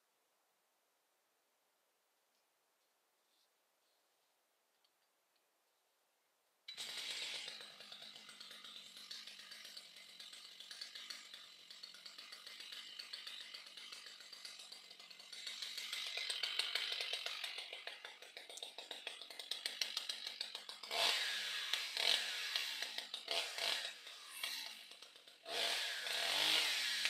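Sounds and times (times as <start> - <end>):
chainsaw running: 6.7 - 27.0.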